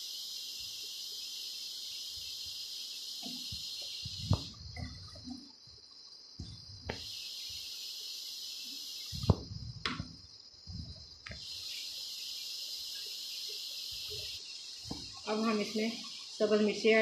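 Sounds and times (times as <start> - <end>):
food sizzling in oil: 0.0 - 4.7, 11.3 - 16.8.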